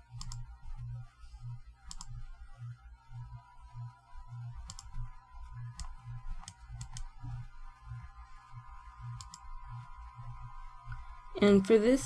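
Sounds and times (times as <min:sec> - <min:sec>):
computer mouse clicks: 0:00.0 - 0:00.6, 0:01.8 - 0:02.4, 0:04.6 - 0:07.4, 0:09.0 - 0:09.8
faint low pulsing hum: 0:00.0 - 0:12.0.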